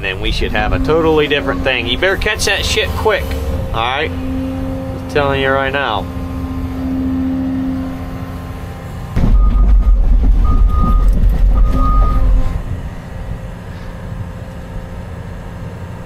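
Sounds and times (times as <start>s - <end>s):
excavator diesel engine rumbling: 0.0s - 16.0s
machine clatter: 9.2s - 12.6s
short high beeps: 9.4s - 12.4s.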